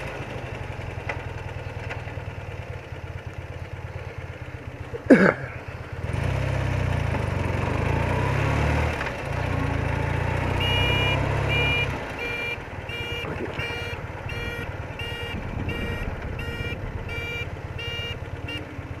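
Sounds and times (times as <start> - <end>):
motorcycle engine running: 0.0 - 19.0
electronic beeper: 10.6 - 18.6.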